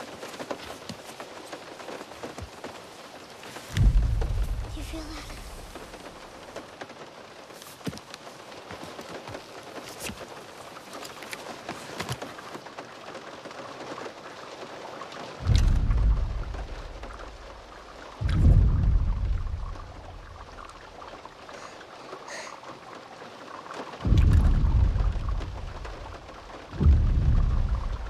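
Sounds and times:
rain on a car roof: 0.0s - 28.0s
deep heavy booms: 3.8s - 5.6s, 15.4s - 17.5s, 18.2s - 20.8s, 24.0s - 28.0s.

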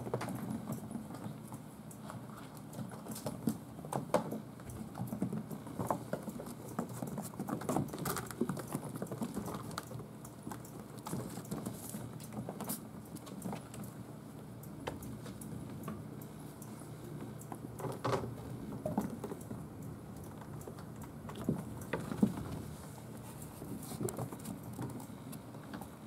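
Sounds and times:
kittens pattering on wooden floor: 0.0s - 14.0s, 20.2s - 26.0s.

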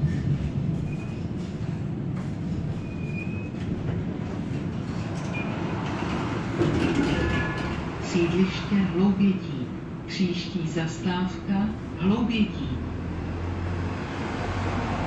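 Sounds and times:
tram wheels rumbling on rail: 0.0s - 15.0s
faint wheel squeals: 2.7s - 3.7s.

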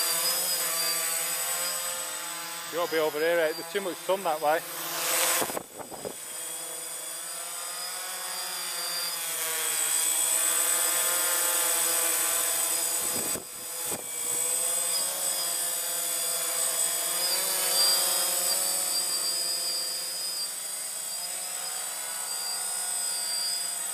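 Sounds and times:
drone propellers buzzing: 0.0s - 23.9s.

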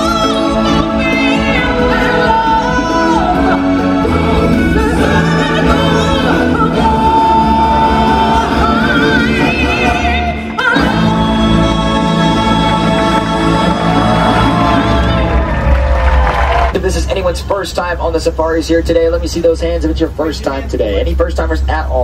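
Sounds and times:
singers holding vibrato notes: 0.0s - 16.3s
backing track music: 0.0s - 22.0s.

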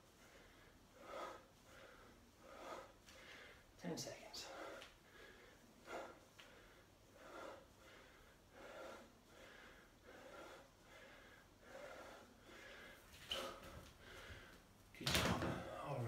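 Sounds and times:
man breathing hard: 0.0s - 14.8s.

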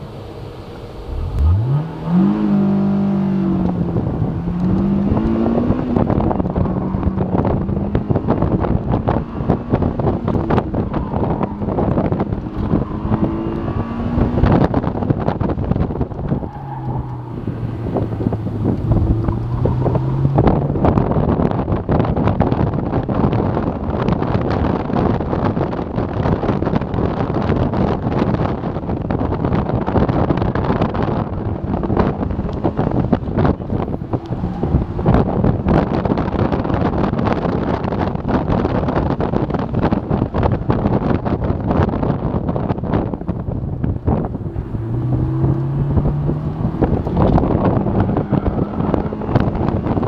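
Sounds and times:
wind buffeting microphone: 1.0s - 50.0s
car engine revving hard: 1.1s - 16.0s, 44.1s - 50.0s.

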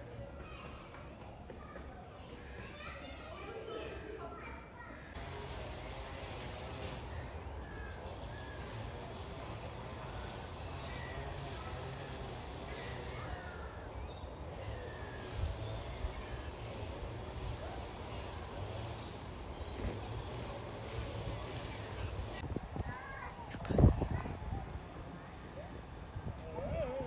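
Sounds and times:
small birds chirping: 5.2s - 22.4s
steady hiss: 5.2s - 22.4s
wind buffeting microphone: 22.4s - 25.0s.

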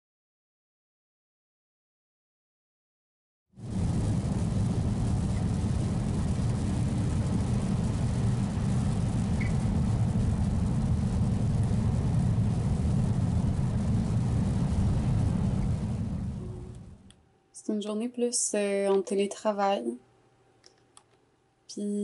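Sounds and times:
car engine and tyre rumble: 3.7s - 17.1s.

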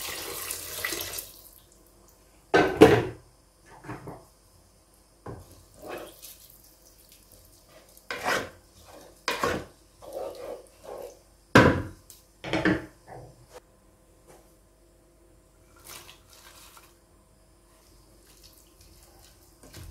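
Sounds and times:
wooden spatula scraping pot: 5.8s - 6.2s, 7.7s - 11.2s.

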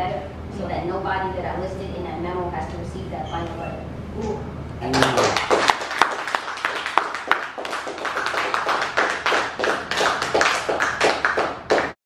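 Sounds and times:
small audience applauding: 4.9s - 12.0s.

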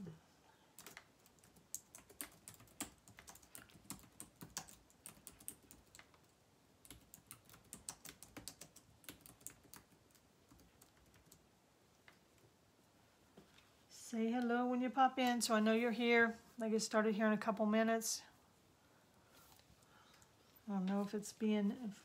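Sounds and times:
typing on keyboard: 0.8s - 11.4s.

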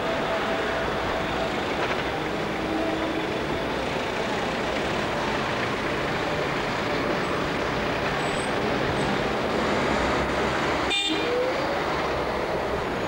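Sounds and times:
city street traffic hum: 0.0s - 13.0s.

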